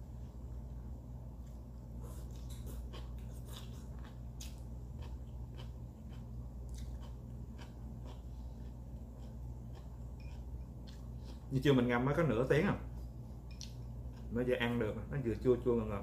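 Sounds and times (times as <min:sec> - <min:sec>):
steady low hum: 0:00.0 - 0:16.0
person chewing crunchy food: 0:01.4 - 0:11.5.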